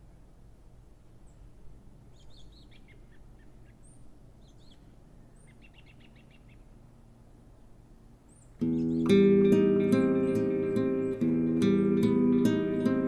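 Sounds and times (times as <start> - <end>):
small birds chirping: 1.1 - 13.0
bird trill: 8.3 - 13.0.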